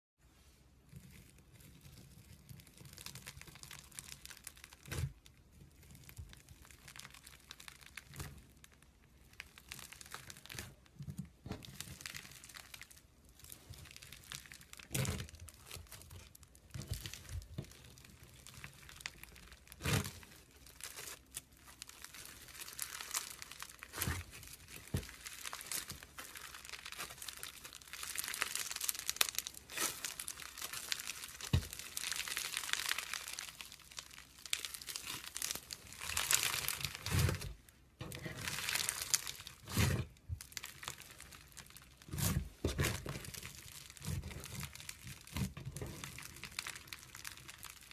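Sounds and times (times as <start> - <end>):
foam beads crackling: 0.9 - 47.9.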